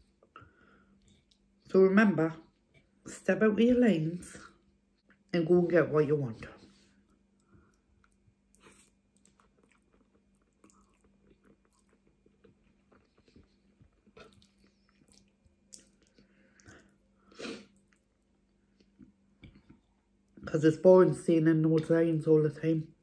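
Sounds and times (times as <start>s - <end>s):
person chewing food: 0.0s - 1.7s, 6.7s - 20.4s.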